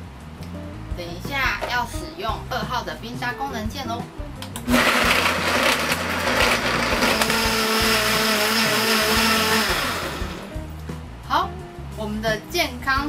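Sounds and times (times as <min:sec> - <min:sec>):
blender motor whine: 0:04.6 - 0:10.5.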